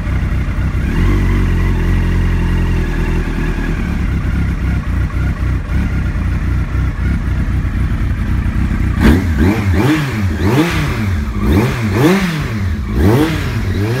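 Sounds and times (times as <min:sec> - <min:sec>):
motorcycle engine revving: 0:00.0 - 0:14.0.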